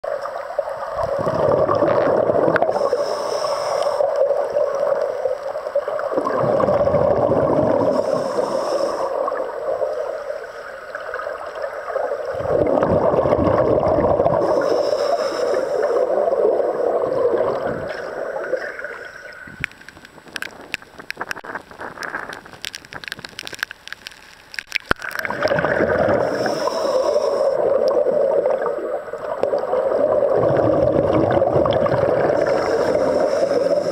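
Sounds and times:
gurgling exhaled bubbles: 0.1 - 24.0, 24.6 - 33.9
regulator hiss on inhale: 2.5 - 6.0, 6.7 - 11.0, 14.2 - 22.4, 26.1 - 28.2, 32.2 - 33.9
faint clicks: 17.8 - 25.3.

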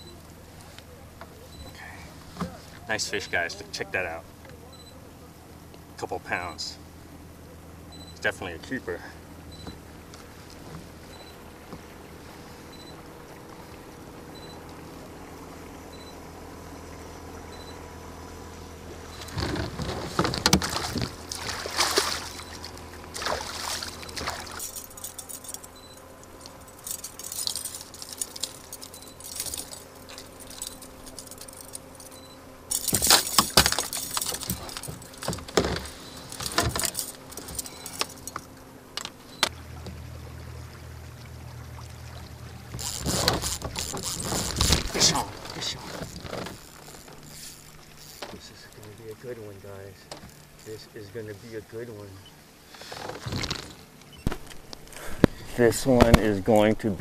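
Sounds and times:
boat motor running: 0.0 - 57.0
fishing gear clicking and rattling: 19.2 - 39.9, 42.6 - 51.0, 52.7 - 55.0.

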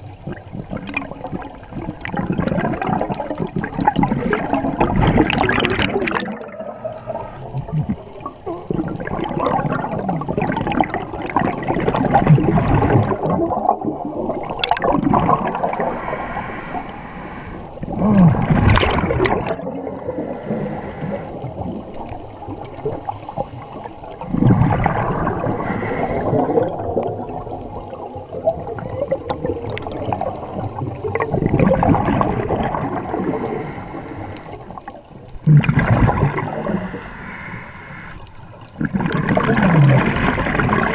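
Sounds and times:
underwater bubbles gurgling: 0.0 - 40.9.

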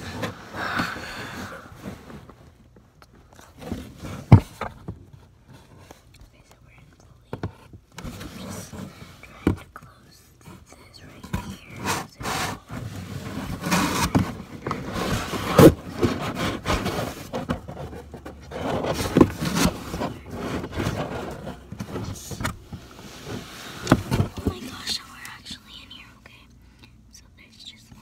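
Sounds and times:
cardboard flaps scraping: 11.4 - 24.7.

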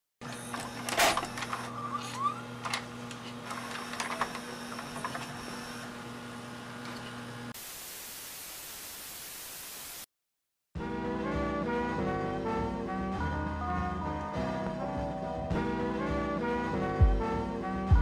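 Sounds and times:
tape mechanism motor hum: 0.2 - 7.6
tv static hiss: 7.6 - 10.1.

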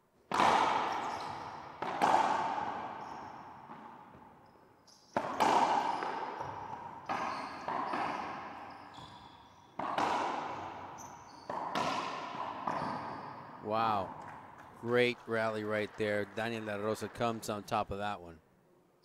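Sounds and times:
racquet hitting ball: 0.3 - 14.8
ball smacking off walls: 9.8 - 10.7, 11.5 - 13.0.

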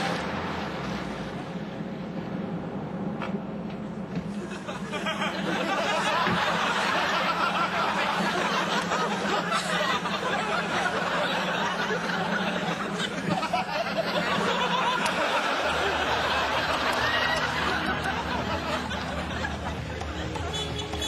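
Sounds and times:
studio audience laughing: 4.3 - 21.0.

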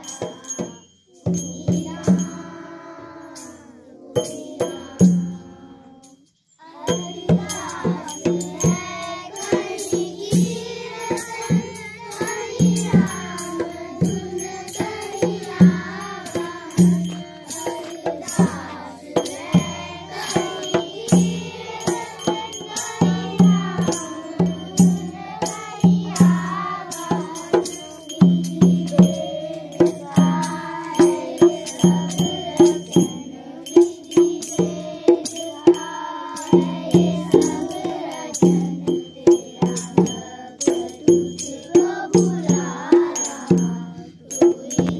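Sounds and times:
drum beating steady rhythm: 0.0 - 6.1, 6.7 - 44.9
children singing in unison: 0.0 - 44.9
sharp percussion strikes: 0.0 - 44.9.

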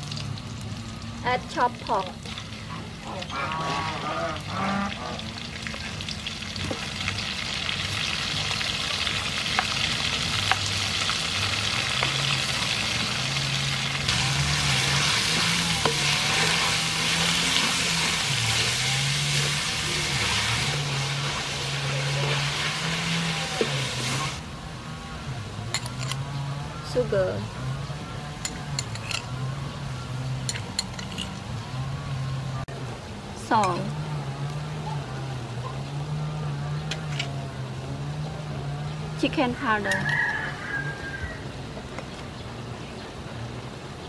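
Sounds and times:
meat sizzling in a wok: 5.2 - 24.4.

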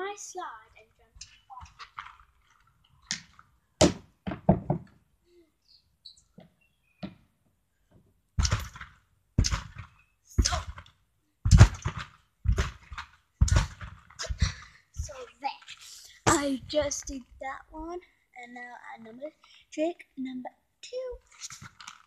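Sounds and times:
child landing on trampoline: 8.4 - 15.2.

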